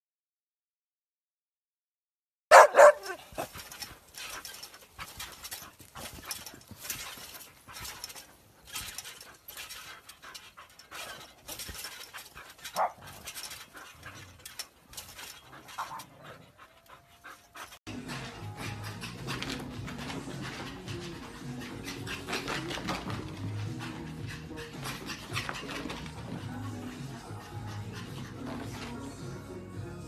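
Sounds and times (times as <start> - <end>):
dog crying: 2.5 - 3.5
dog panting: 2.5 - 29.4.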